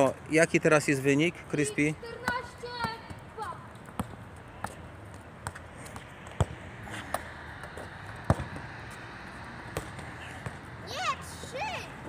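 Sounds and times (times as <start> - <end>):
football thudding on stone paving: 2.2 - 3.2, 3.8 - 8.7, 9.7 - 10.6.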